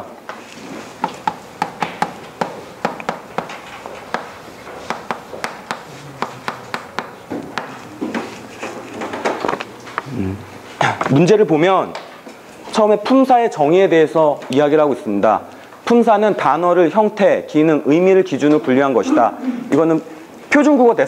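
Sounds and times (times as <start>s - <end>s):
writing taps on a board: 1.0s - 8.3s.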